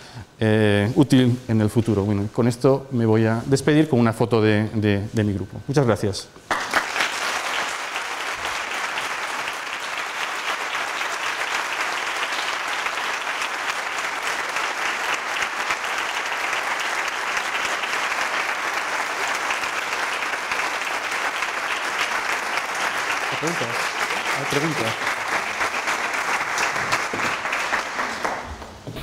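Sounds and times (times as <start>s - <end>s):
large audience applauding: 6.5s - 28.7s.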